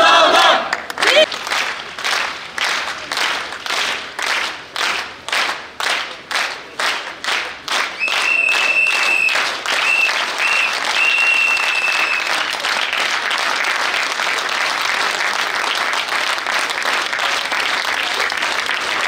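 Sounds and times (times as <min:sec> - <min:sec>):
crowd clapping: 0:00.0 - 0:19.0
high whistle blasts: 0:08.0 - 0:12.3.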